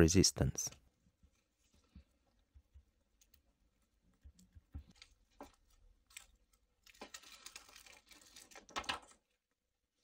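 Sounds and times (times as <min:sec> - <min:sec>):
plastic liner peeling crinkling: 0:03.2 - 0:09.5.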